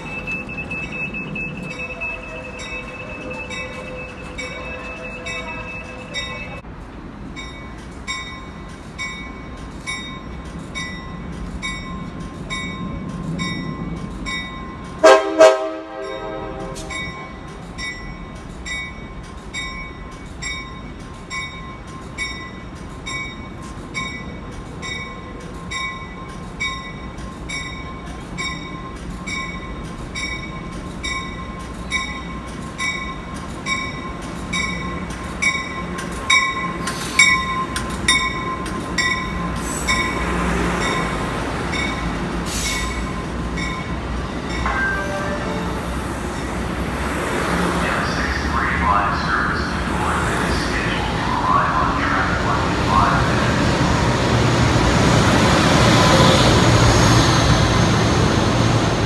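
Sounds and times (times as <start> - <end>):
bell ringing: 0.0 - 6.6, 43.6 - 46.5
train approaching: 0.0 - 59.0
train horn blasts: 15.0 - 17.1, 44.7 - 46.1.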